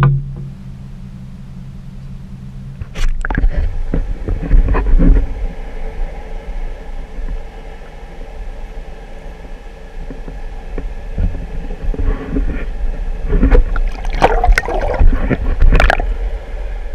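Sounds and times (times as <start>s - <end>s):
faint whine: 0.0s - 16.9s
water splashing and sloshing: 2.8s - 4.6s, 13.3s - 16.2s
low rumble: 11.3s - 16.9s.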